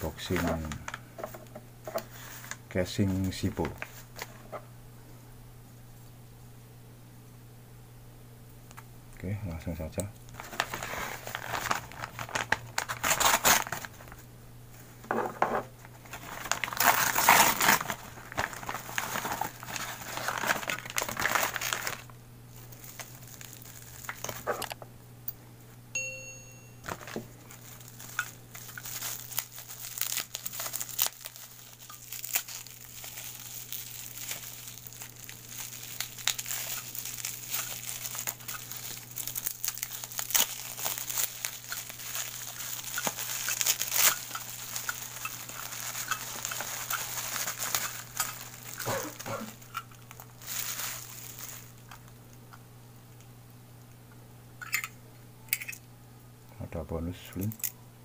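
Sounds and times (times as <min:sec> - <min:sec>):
packaging crinkling and rustling: 0:00.0 - 0:04.5, 0:10.3 - 0:24.8, 0:26.8 - 0:52.4.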